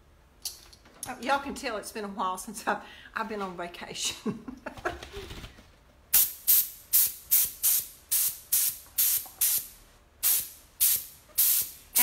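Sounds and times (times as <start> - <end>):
air gun hissing blasts: 6.1 - 12.0.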